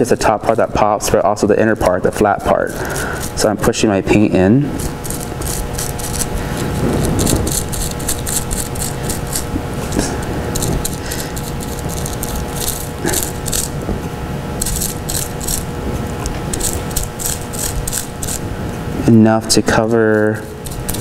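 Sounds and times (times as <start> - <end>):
paintbrush scrubbing bubble wrap: 0.0 - 3.8, 4.8 - 13.8, 16.5 - 18.5, 19.4 - 21.0.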